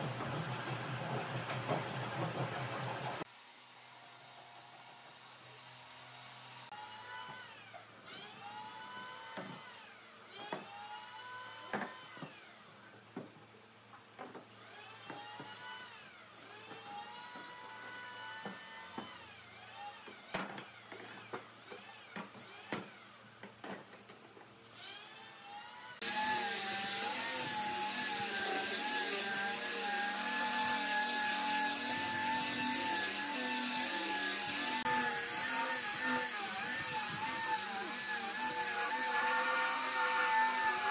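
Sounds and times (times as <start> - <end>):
angle grinder sanding wood: 26.0 - 40.9.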